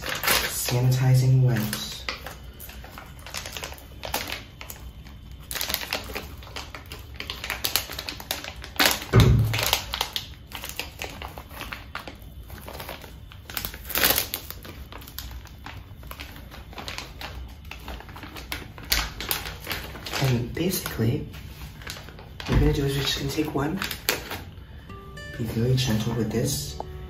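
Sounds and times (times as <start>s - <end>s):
plastic packaging crinkling: 0.0s - 27.0s
thump: 9.2s - 9.6s.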